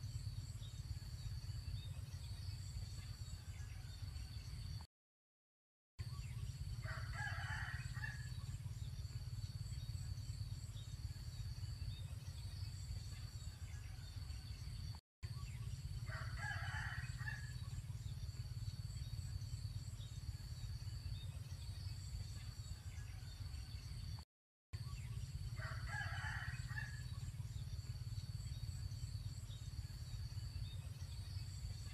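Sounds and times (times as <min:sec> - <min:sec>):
rooster crowing: 0:06.8 - 0:08.3, 0:16.1 - 0:17.6, 0:25.6 - 0:27.0.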